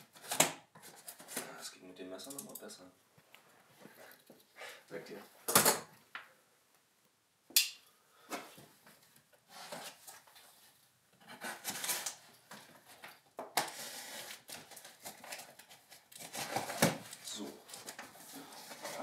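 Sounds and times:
cardboard scraping and rubbing: 0:13.7 - 0:15.3.

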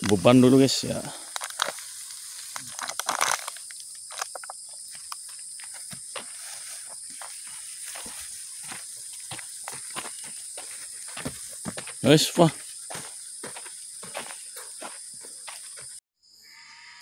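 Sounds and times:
high insect drone: 0:00.0 - 0:17.0
grass bundle rustling: 0:00.5 - 0:10.0
footfalls on dirt path: 0:01.4 - 0:16.0.

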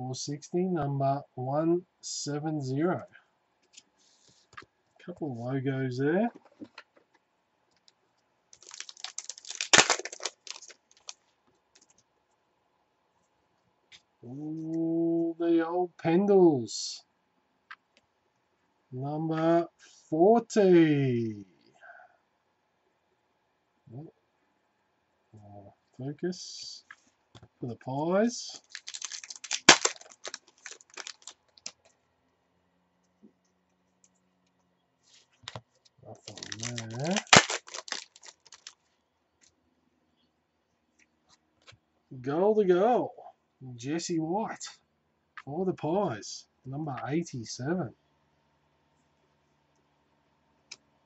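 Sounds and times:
wrapper ripping: 0:08.6 - 0:11.2, 0:28.6 - 0:31.8, 0:36.2 - 0:38.8
wrapper crinkling: 0:08.6 - 0:12.0, 0:28.6 - 0:31.9, 0:35.5 - 0:38.9.

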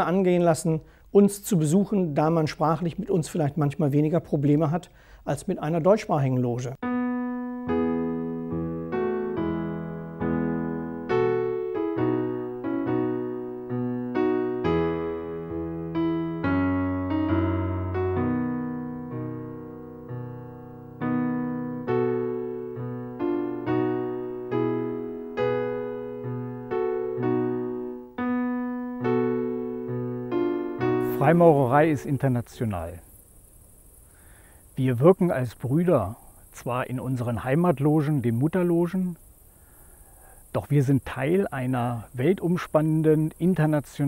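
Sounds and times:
slow piano music: 0:06.8 - 0:32.8.

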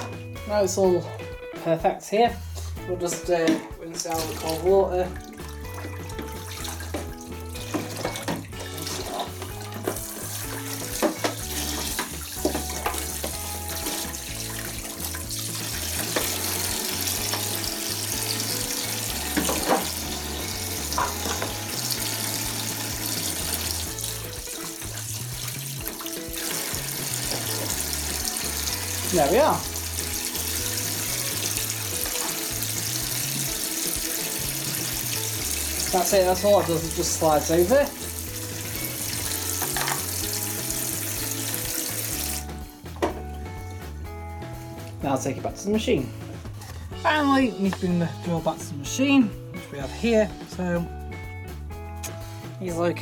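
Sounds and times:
tap water running into sink: 0:02.6 - 0:43.8.

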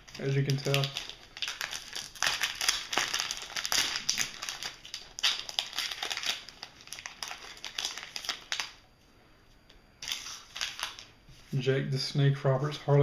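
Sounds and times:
wrapper crinkling and crackling: 0:00.0 - 0:08.9, 0:10.0 - 0:11.2.

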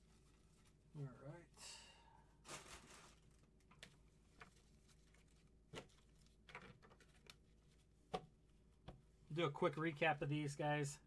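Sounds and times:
soft rustle: 0:00.0 - 0:01.2, 0:02.4 - 0:06.4.

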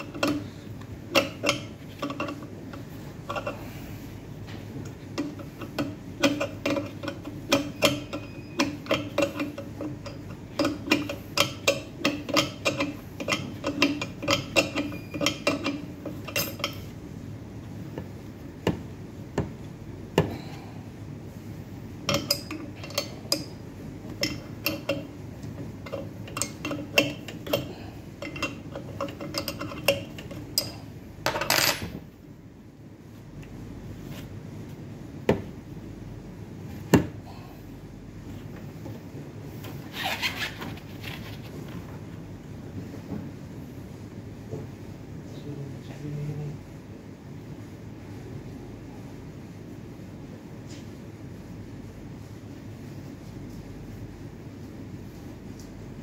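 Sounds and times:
steady low hum: 0:00.0 - 0:56.0
metallic clicks of parts handled: 0:25.8 - 0:31.9.

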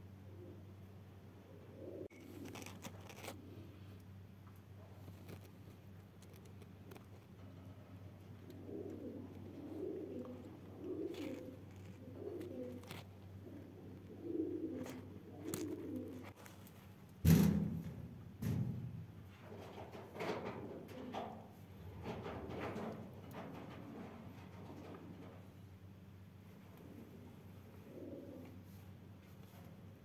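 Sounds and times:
steady low hum: 0:00.0 - 0:30.0
pigeons cooing: 0:01.4 - 0:04.1, 0:07.3 - 0:16.4, 0:26.8 - 0:28.8.

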